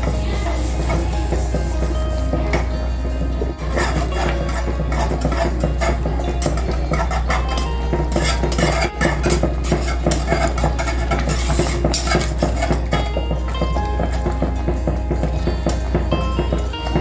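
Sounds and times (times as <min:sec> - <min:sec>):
whisk clinking against steel pan: 0:03.4 - 0:17.0.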